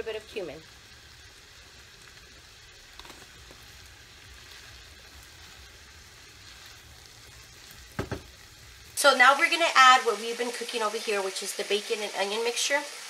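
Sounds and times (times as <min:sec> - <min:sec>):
food sizzling in a frying pan: 0:00.0 - 0:13.0.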